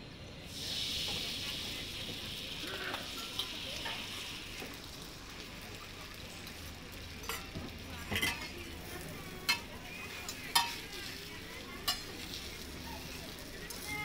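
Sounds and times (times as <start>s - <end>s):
flatbread sizzling on a griddle: 0.4s - 14.0s
metal utensils clinking on griddle: 2.6s - 4.3s, 6.4s - 14.0s.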